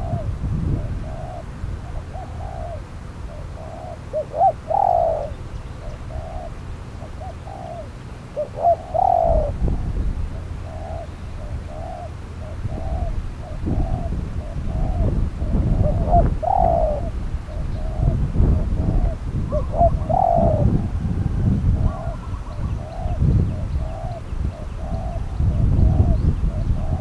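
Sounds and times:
doves cooing: 0.0 - 27.0.

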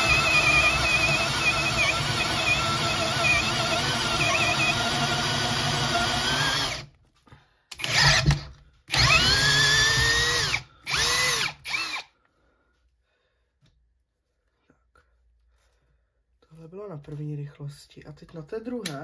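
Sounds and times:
cordless drill drilling: 0.0 - 6.9, 7.7 - 12.1
drill motor spinning up and down: 0.0 - 6.9, 7.8 - 12.1.

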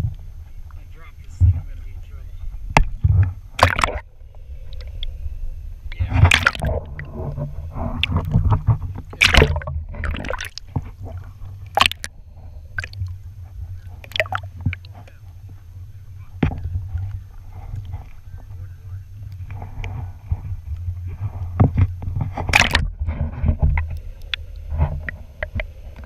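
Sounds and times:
steady low rumble: 0.0 - 26.0
underwater gurgling: 0.0 - 26.0
water splashing against camera: 0.0 - 26.0.

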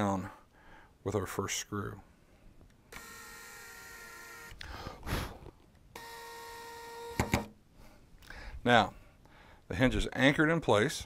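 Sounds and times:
power drill motor whining: 2.9 - 4.6, 5.9 - 7.5
drill clicks: 5.9 - 7.5.

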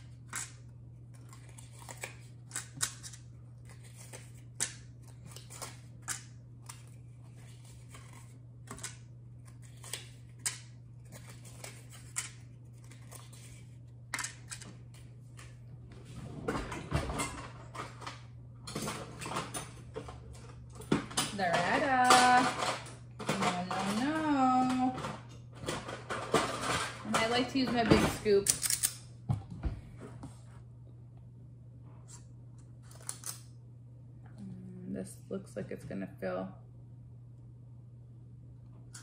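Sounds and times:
steady low hum: 0.0 - 39.0
clattering and rustling: 16.0 - 28.4
utensils and baking tins clicking: 17.2 - 29.1.

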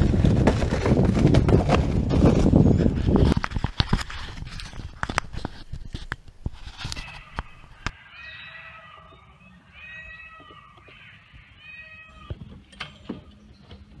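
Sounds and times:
mewing animal calls: 6.9 - 13.0.

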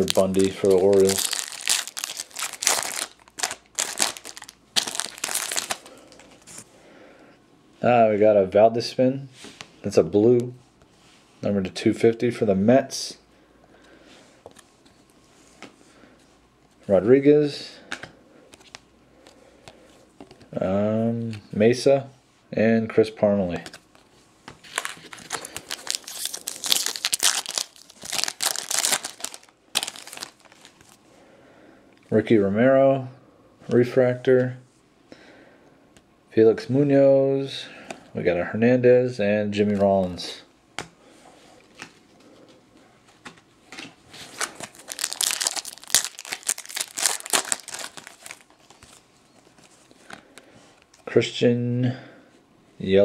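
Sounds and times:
foil wrapper crinkling: 0.0 - 6.4, 24.6 - 31.0, 44.2 - 49.7.

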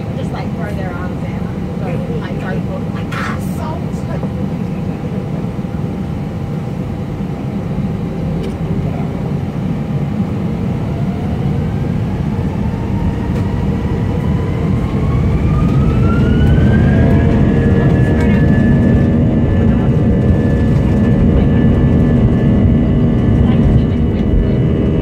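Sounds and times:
jet engines rumbling and whining: 0.0 - 25.0.

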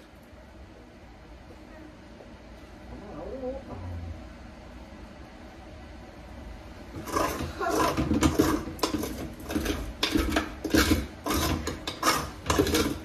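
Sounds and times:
scraping inside a metal pot: 6.9 - 13.0.

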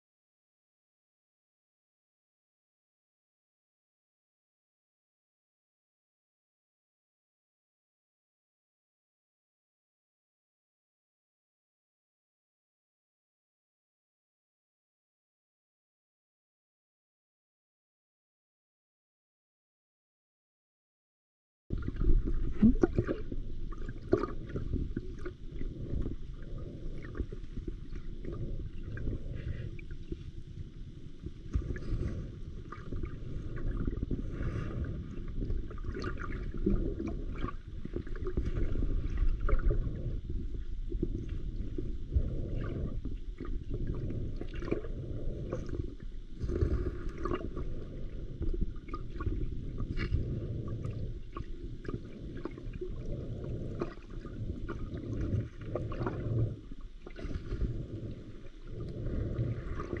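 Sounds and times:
underwater water rumble: 21.7 - 60.0.

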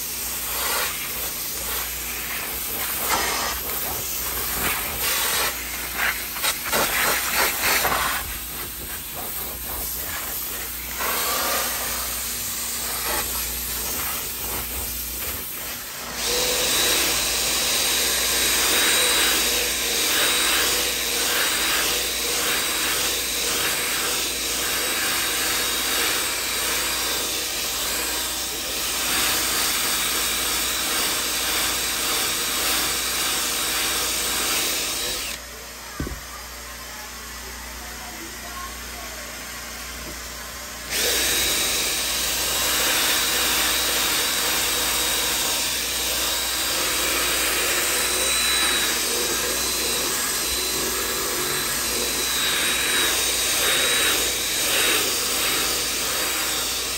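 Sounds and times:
extraction wand hissing: 0.0 - 17.1
cordless drill whirring: 0.0 - 35.4, 39.8 - 56.9.

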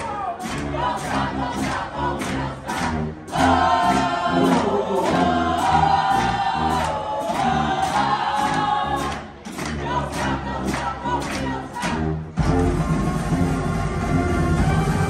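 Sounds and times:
horns and sousaphones held notes: 0.0 - 9.6, 11.8 - 15.0
marching band drums: 7.3 - 15.0.

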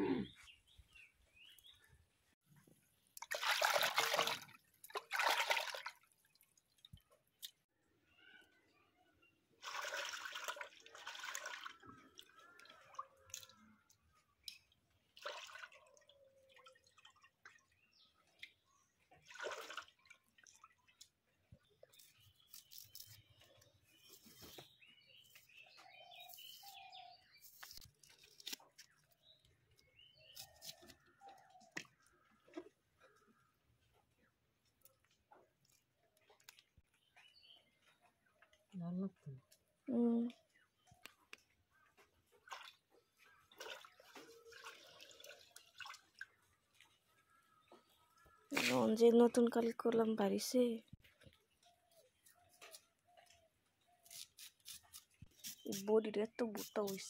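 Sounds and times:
water splashing in a bowl: 3.1 - 7.6, 9.6 - 22.0, 42.3 - 47.1
onion peeling on a blade: 22.0 - 23.4, 30.3 - 31.0, 54.0 - 57.0.

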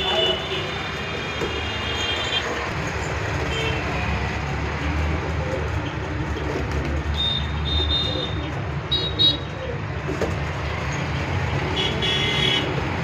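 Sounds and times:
road traffic rumble: 0.0 - 13.0
vehicle horn: 11.8 - 12.8.

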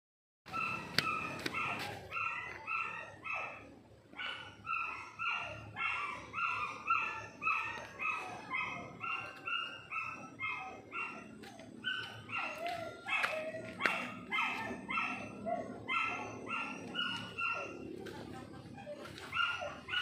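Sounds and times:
dog barking: 0.5 - 20.0.

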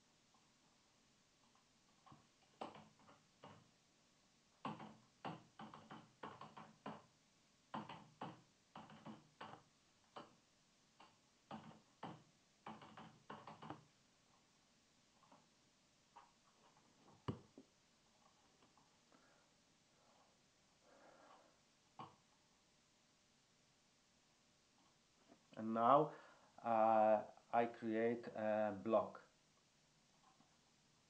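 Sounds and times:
keyboard typing: 1.4 - 3.7, 4.6 - 7.1, 7.7 - 10.4, 11.0 - 13.9.

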